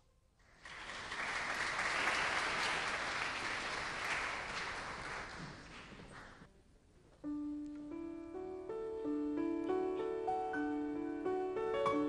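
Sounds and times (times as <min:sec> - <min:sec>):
audience applauding: 0:00.5 - 0:06.5.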